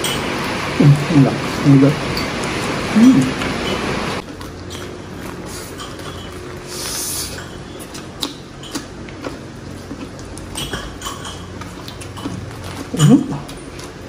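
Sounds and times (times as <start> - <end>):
heavy rain: 0.0 - 4.2.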